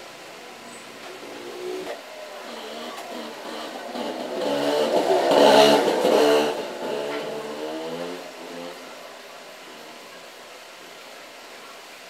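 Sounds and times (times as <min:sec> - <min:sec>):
vehicle engine passing by: 0:01.2 - 0:09.1.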